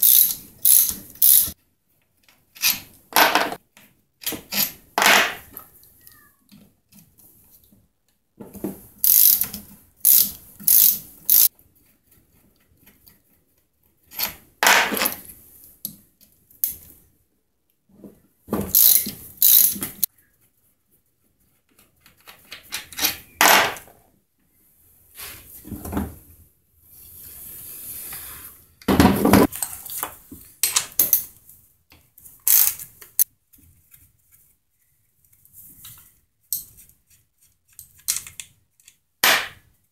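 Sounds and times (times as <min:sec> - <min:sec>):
hand tools clicking and rattling: 0:00.0 - 0:01.6, 0:09.0 - 0:11.5, 0:18.7 - 0:20.1, 0:32.4 - 0:33.3
small parts set on wooden bench: 0:00.0 - 0:20.5, 0:21.3 - 0:26.3, 0:26.9 - 0:39.9.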